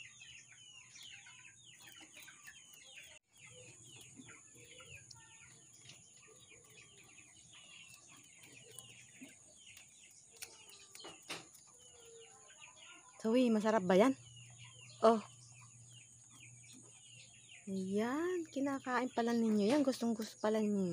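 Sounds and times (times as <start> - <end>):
chickens clucking: 0.0 - 20.8
chicks peeping: 0.0 - 20.9.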